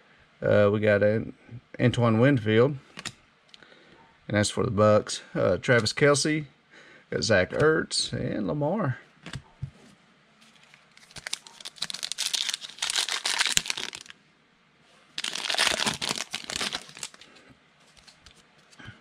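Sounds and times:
foil wrapper tearing and crinkling: 10.9 - 14.1, 15.2 - 17.3.

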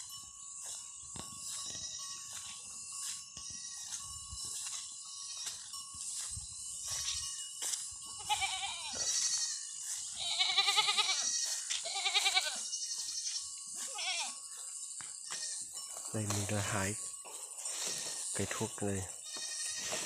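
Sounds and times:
goats bleating: 8.2 - 14.4, 15.3 - 15.7, 19.0 - 20.0.

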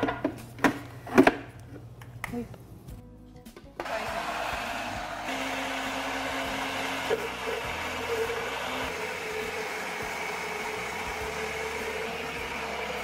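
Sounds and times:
blender running: 3.8 - 13.0.

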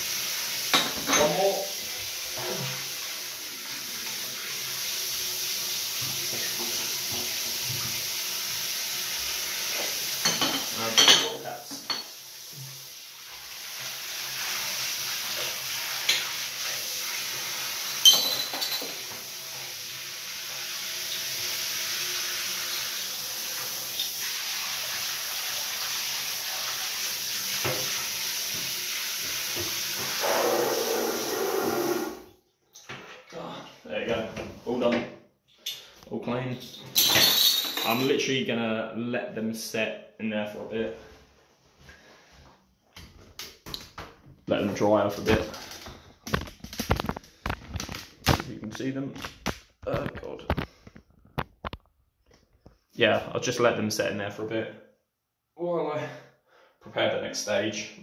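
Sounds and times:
water spraying from shower head: 0.0 - 32.3
glass bottles clinking: 0.7 - 1.4, 10.2 - 12.1, 18.0 - 19.0, 36.5 - 38.2.

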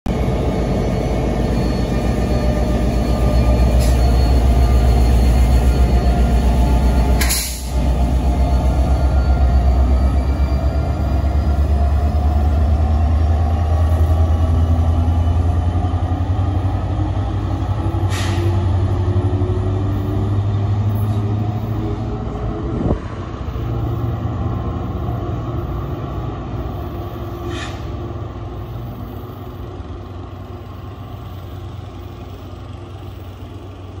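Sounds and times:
diesel locomotive engine droning: 0.1 - 34.0
short air hisses: 18.1 - 18.6, 27.4 - 27.9.

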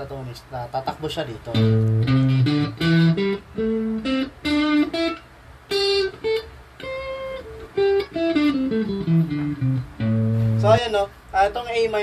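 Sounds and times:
electric guitar single notes: 1.5 - 10.8.

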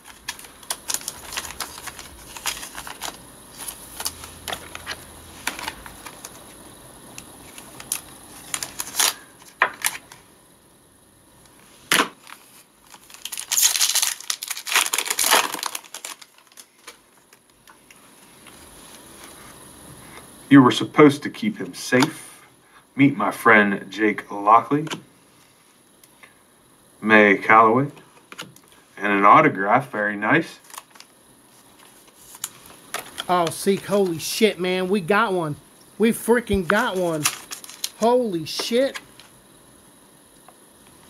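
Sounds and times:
papery rustles: 0.0 - 6.4, 12.2 - 19.5, 30.6 - 34.3, 36.5 - 39.3.

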